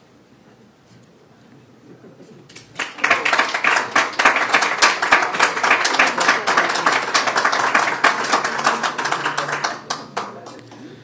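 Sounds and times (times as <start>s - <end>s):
audience applauding: 2.5s - 10.7s.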